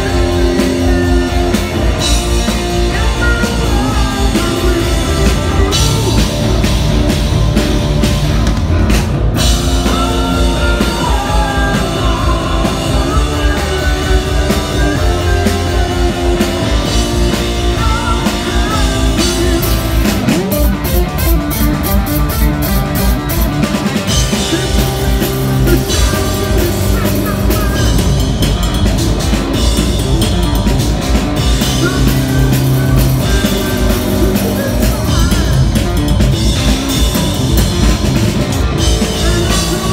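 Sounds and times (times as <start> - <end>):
man singing: 0.0 - 6.8, 9.5 - 20.7, 24.1 - 28.9, 31.4 - 37.2, 38.7 - 39.9
distorted electric guitar: 0.0 - 39.9
drum kit: 0.0 - 39.9.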